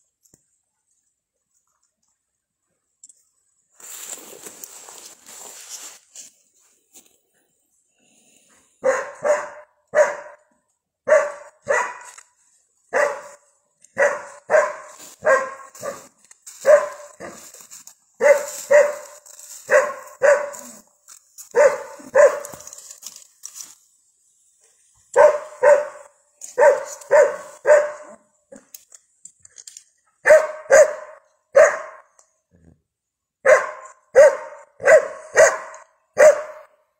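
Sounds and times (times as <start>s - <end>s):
dog barking: 8.8s - 12.2s, 12.9s - 13.4s, 14.0s - 17.5s, 18.2s - 20.8s, 21.5s - 22.6s, 25.2s - 28.2s, 30.2s - 32.2s, 33.4s - 36.8s.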